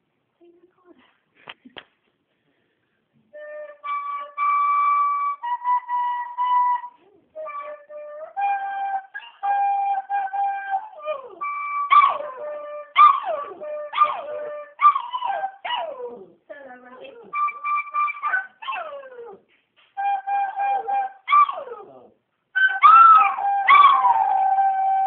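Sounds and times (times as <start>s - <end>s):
dog howling: 20.5s - 25.0s.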